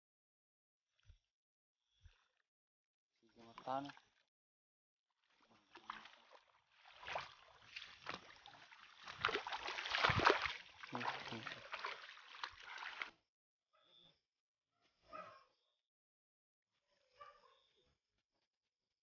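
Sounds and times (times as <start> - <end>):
feet splashing through shallow water: 5.2 - 13.2.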